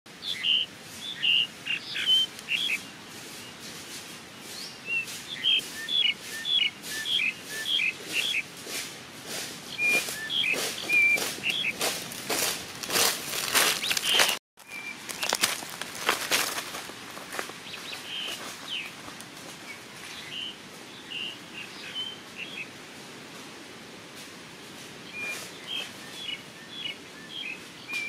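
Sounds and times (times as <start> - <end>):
birds chirping and whistling: 0.2 - 8.5, 9.6 - 11.9, 12.9 - 15.4, 17.6 - 19.0, 19.6 - 22.7, 25.0 - 28.0
footsteps crunching dry leaves: 1.0 - 20.6.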